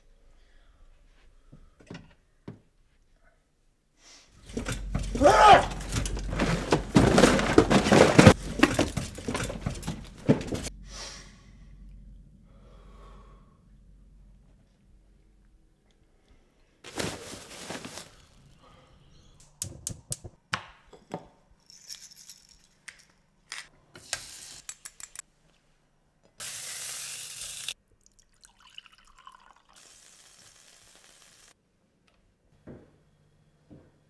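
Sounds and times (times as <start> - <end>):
kitchen knocks and clicks: 4.4 - 10.7.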